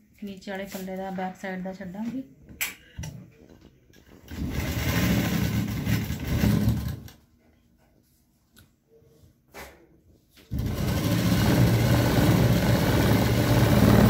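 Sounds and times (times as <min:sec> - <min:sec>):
sewing machine stitching: 0:04.2 - 0:07.2, 0:10.5 - 0:14.0.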